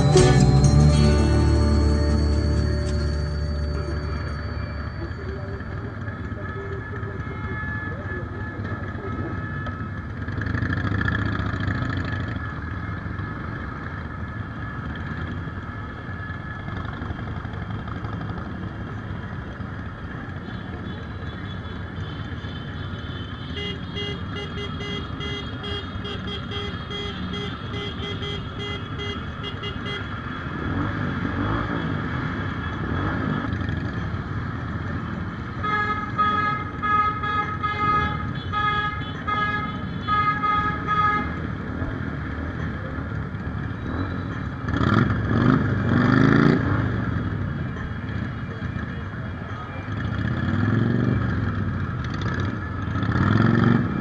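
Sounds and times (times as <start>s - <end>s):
horn beeping: 0.0s - 10.0s
motorcycle engines running: 0.0s - 36.9s, 40.8s - 54.0s.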